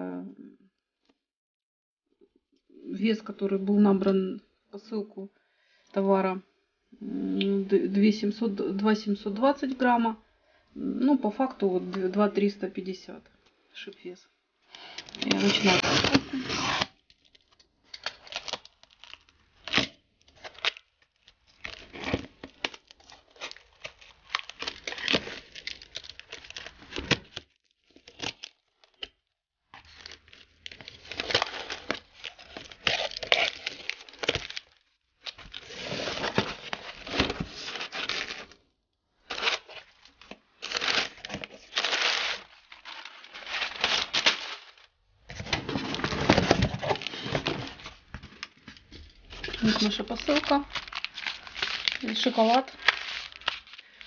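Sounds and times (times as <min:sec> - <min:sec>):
tape tearing: 0:15.0 - 0:17.2, 0:17.9 - 0:29.1, 0:29.8 - 0:38.6, 0:39.3 - 0:54.0
cardboard flaps rustling: 0:40.7 - 0:48.4.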